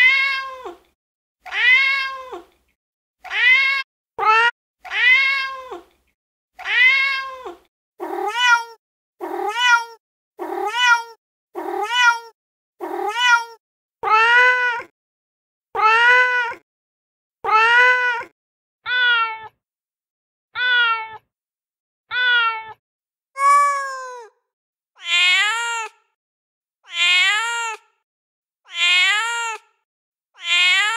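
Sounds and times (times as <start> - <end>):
cat meowing: 0.0 - 0.9, 1.5 - 2.5, 3.2 - 5.9, 6.6 - 14.9, 15.8 - 16.6, 17.5 - 19.6, 20.6 - 21.3, 22.1 - 22.8, 23.4 - 24.3, 25.0 - 26.0, 26.8 - 27.9, 28.7 - 29.7, 30.4 - 30.9.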